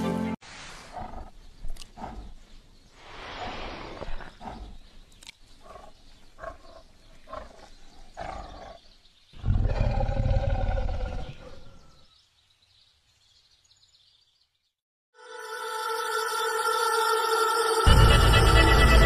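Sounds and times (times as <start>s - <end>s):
big cat rasping grunts: 0.9s - 2.4s, 4.0s - 4.9s, 5.6s - 8.9s.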